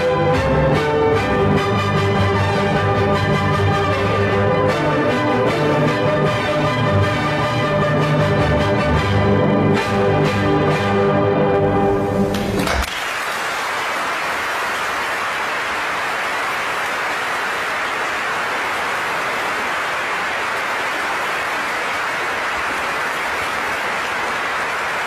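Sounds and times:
orchestral music: 0.0 - 12.6
audience applauding: 12.2 - 25.0.

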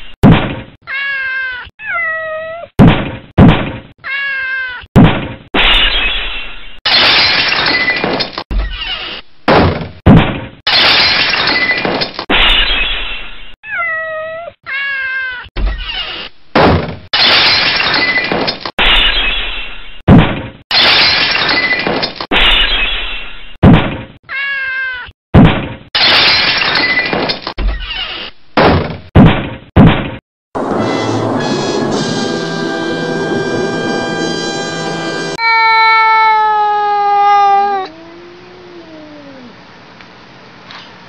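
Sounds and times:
cat meowing and yowling: 0.8 - 2.7, 4.0 - 4.9, 13.6 - 16.2, 24.3 - 25.1, 35.4 - 39.6.

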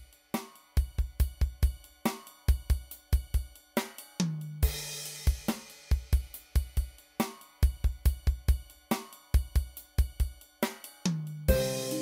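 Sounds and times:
drum beat: 0.0 - 12.0
cymbal crash: 11.5 - 12.0.

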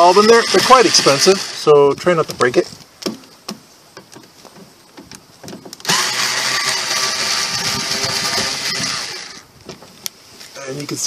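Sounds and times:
electric screwdriver running: 0.0 - 1.7, 5.9 - 9.4.

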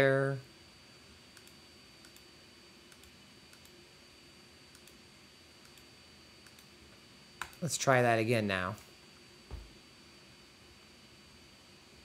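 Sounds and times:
computer mouse clicks: 1.3 - 2.3, 2.9 - 3.8, 4.7 - 5.0, 5.6 - 6.7, 7.4 - 7.6.

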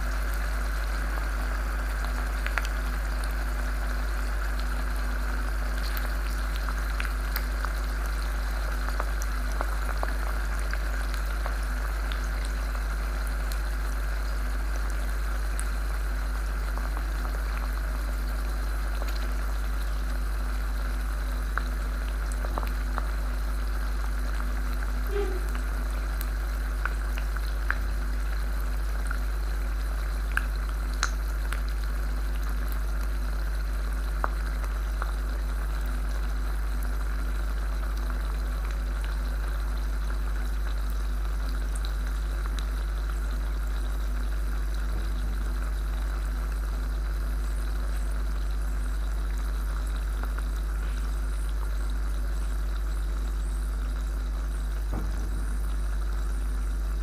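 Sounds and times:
steady low hum: 0.0 - 57.0
faint crackles: 16.6 - 29.3
hot iron ball sizzling: 39.9 - 57.0.

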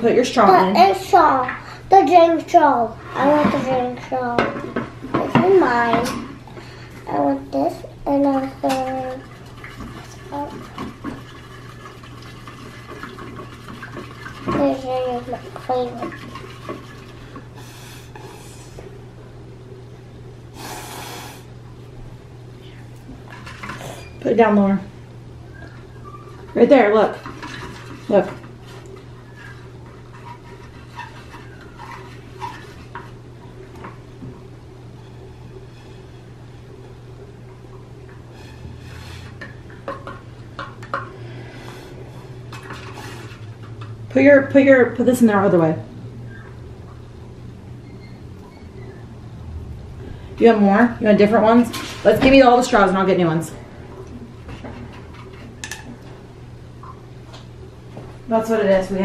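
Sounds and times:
child blowing through straw: 20.6 - 21.5.

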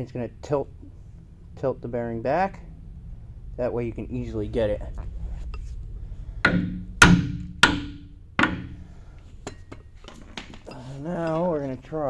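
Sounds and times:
hammer blows on metal: 6.4 - 9.0.

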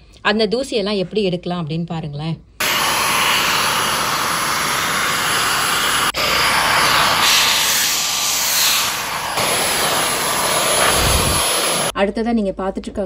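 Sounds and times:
cordless vacuum running: 2.6 - 11.9
brush sweeping hard surface: 6.1 - 11.9.

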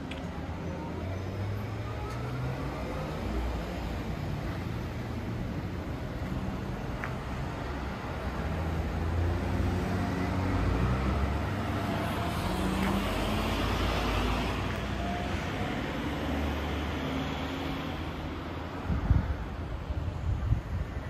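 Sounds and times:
street traffic: 0.0 - 21.0
car passing: 6.4 - 19.2.

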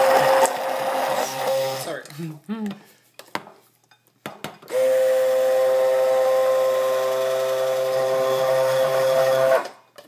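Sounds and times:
stick blender motor running: 0.0 - 2.0, 4.7 - 9.8.

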